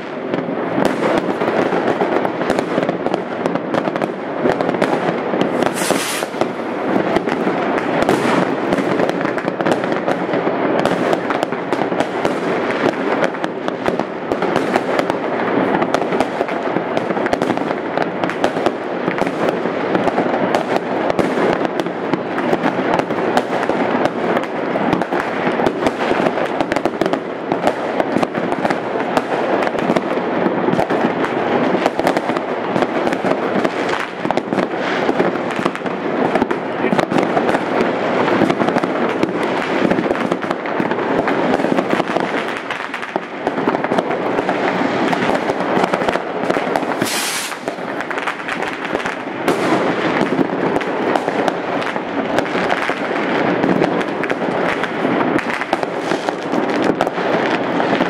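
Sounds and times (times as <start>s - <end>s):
fireworks banging and crackling: 0.0s - 58.0s
high hiss: 5.7s - 6.4s, 47.0s - 47.7s.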